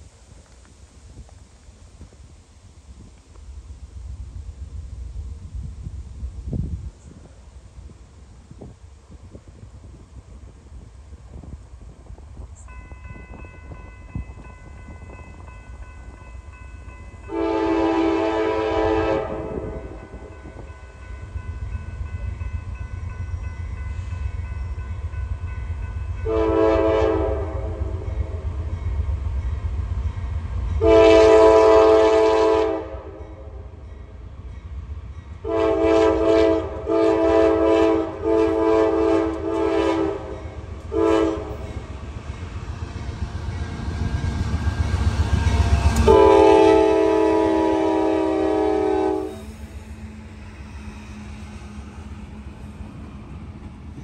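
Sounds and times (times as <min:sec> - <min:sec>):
train rumbling: 0:00.0 - 0:54.0
locomotive air horn blasts: 0:17.2 - 0:20.3, 0:26.2 - 0:28.4, 0:30.8 - 0:33.6, 0:35.4 - 0:41.8, 0:45.8 - 0:49.7.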